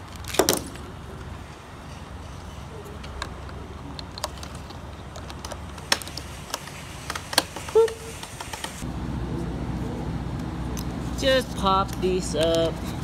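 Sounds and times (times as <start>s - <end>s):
low rumble: 8.8s - 12.0s.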